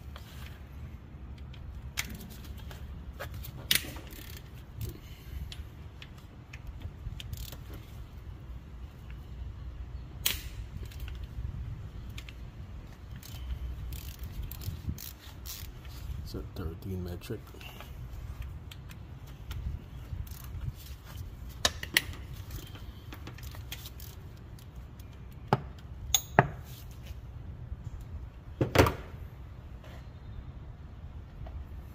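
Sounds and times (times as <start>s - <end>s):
steady low rumble: 0.0s - 24.5s.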